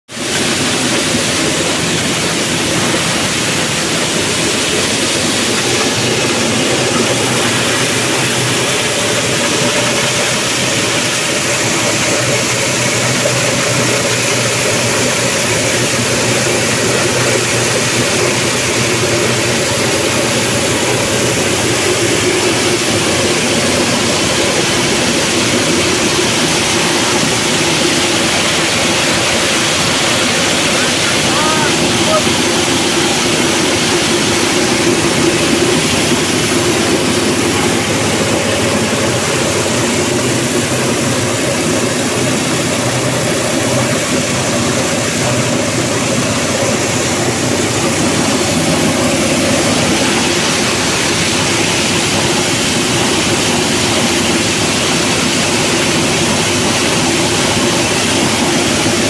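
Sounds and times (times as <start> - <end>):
corn grinder running: 0.1 - 59.0.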